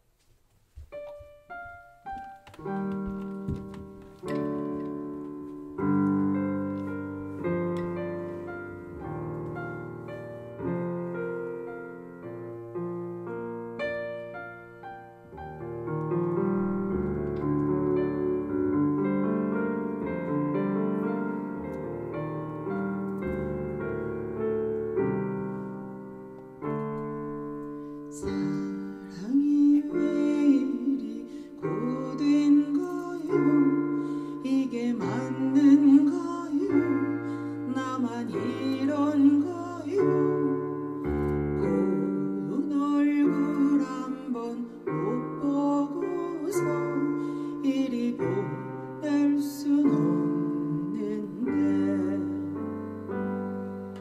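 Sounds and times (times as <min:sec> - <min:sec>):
slow piano chords: 0:00.0 - 0:54.0.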